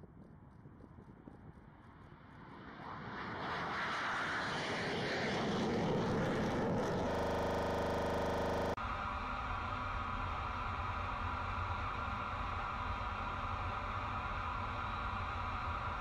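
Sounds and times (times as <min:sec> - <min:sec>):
jet engine roar: 0:02.6 - 0:08.8
steady buzzing drone: 0:06.0 - 0:08.8.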